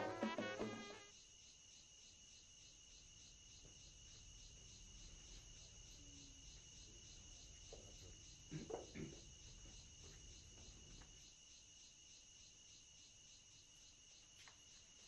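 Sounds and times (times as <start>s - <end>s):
background music: 0.0s - 1.1s
crickets chirring: 0.0s - 15.0s.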